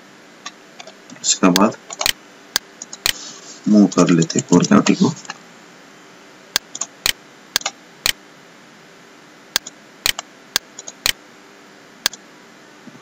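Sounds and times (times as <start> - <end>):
computer mouse clicking: 1.6 - 2.2, 2.8 - 3.2, 6.6 - 8.2, 9.6 - 11.2.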